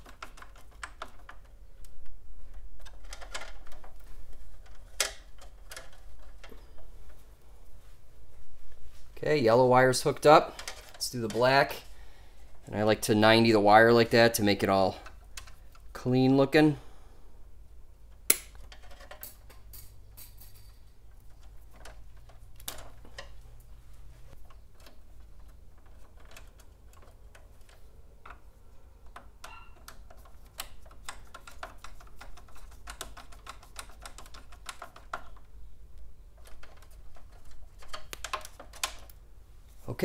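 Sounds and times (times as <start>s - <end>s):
hand tools tapping on metal: 29.1s - 35.4s.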